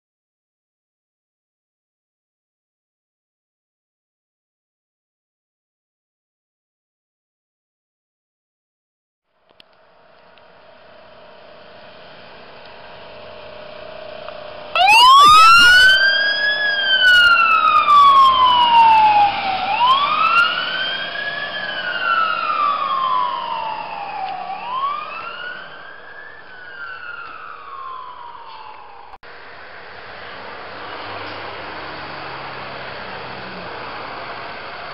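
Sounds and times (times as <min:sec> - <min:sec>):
ambulance engine running: 0:09.3 - 0:34.9
ambulance siren wailing: 0:14.7 - 0:29.2.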